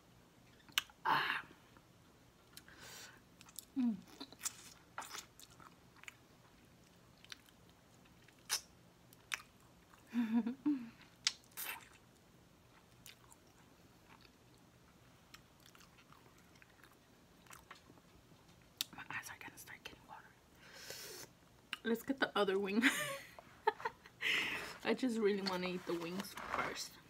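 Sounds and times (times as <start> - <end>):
person chewing: 3.4 - 10.1, 12.7 - 14.6, 15.3 - 18.0.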